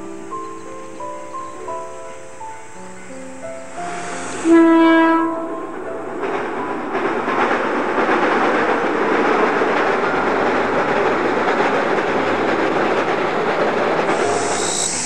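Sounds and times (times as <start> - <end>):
train wheels rumbling on bridge: 3.7 - 15.0.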